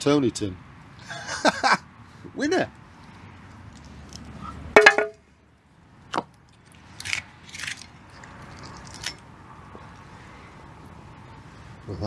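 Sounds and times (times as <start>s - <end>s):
glass bottle clink: 4.8s - 5.2s.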